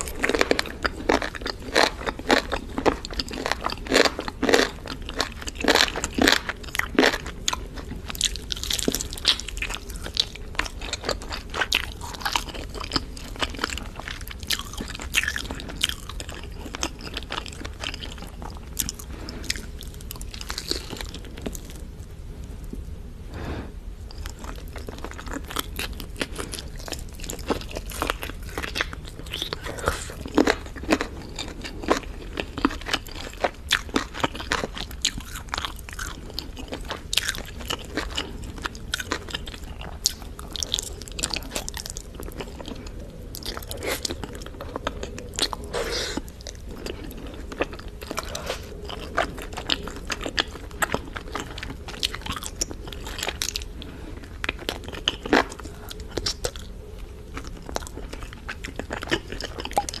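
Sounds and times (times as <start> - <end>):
chewing and crunching chicken: 0.0 - 22.8, 24.1 - 60.0.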